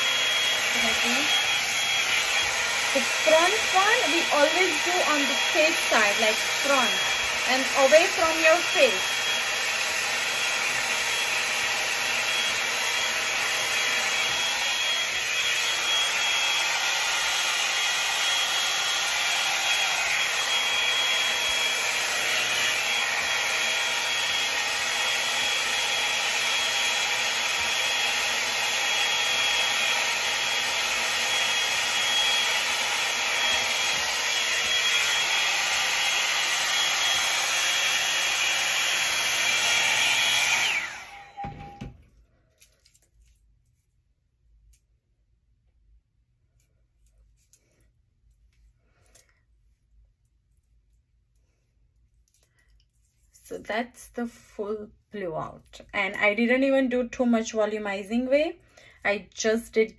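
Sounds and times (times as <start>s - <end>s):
hair dryer blowing air: 0.0s - 42.0s, 56.0s - 59.9s.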